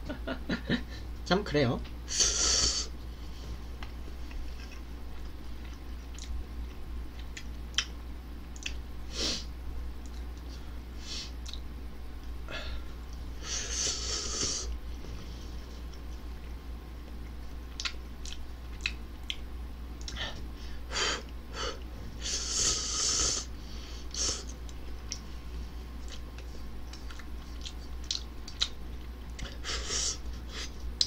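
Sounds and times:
low hum: 0:00.0 - 0:31.0
chewing and lip smacks: 0:03.8 - 0:08.8, 0:10.0 - 0:10.6, 0:11.4 - 0:12.3, 0:15.8 - 0:20.2, 0:24.5 - 0:25.3, 0:26.0 - 0:29.6
breathing: 0:20.2 - 0:21.0, 0:23.4 - 0:24.2.

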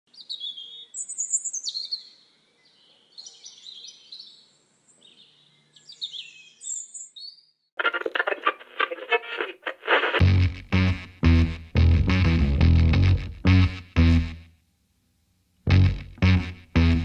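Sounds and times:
songbirds chirping and trilling: 0:00.1 - 0:07.7
loud music: 0:07.8 - 0:14.4, 0:15.7 - 0:17.0.

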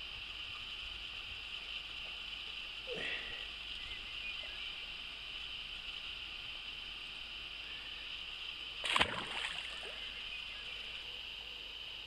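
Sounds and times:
steady high hiss: 0:00.0 - 0:12.0
fish splashing in water: 0:08.8 - 0:10.1.

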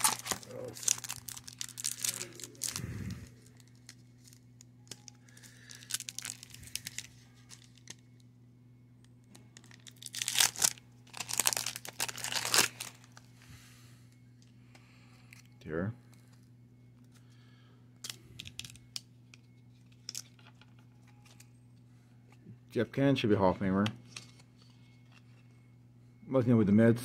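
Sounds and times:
foil wrapper crinkling: 0:00.0 - 0:08.2, 0:09.6 - 0:13.3, 0:18.0 - 0:21.5.

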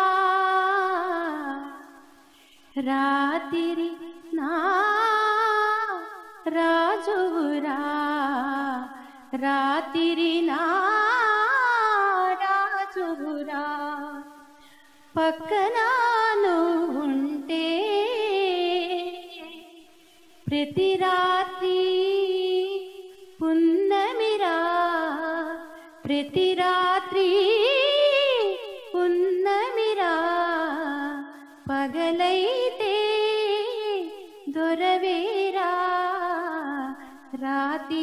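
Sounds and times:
woman singing unaccompanied: 0:00.0 - 0:38.0.

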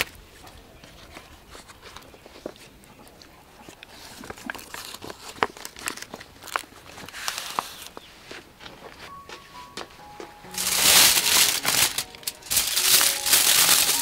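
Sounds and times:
leaves rustling and crinkling: 0:03.6 - 0:09.3, 0:10.4 - 0:14.0.

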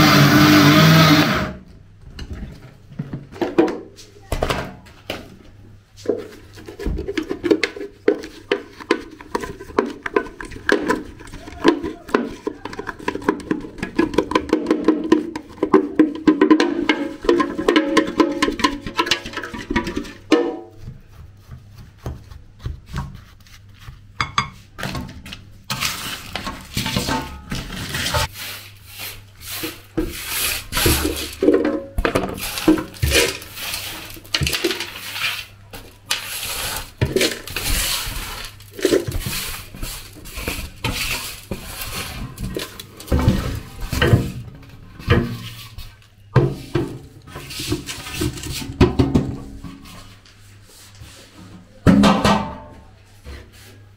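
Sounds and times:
hand scraping cocoa on metal tray: 0:07.3 - 0:24.1, 0:25.7 - 0:31.5, 0:32.2 - 0:48.8.

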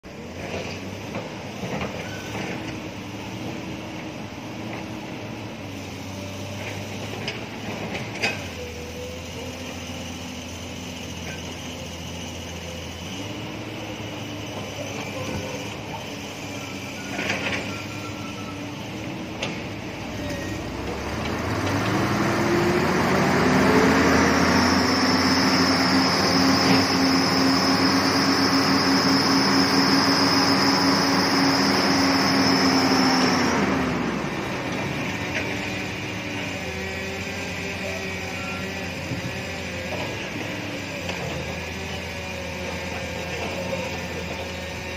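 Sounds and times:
truck diesel engine: 0:00.0 - 0:44.9
high whine: 0:22.2 - 0:36.5.

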